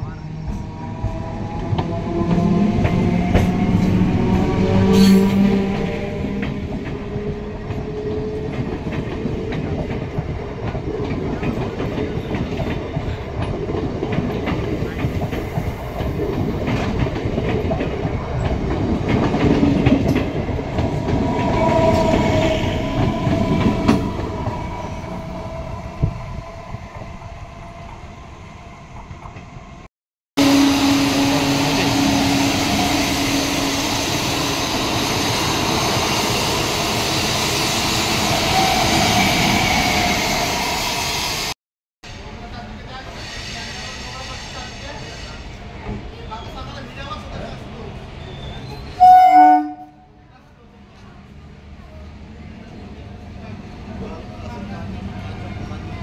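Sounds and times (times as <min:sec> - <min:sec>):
steady train hum: 0:00.0 - 0:41.5.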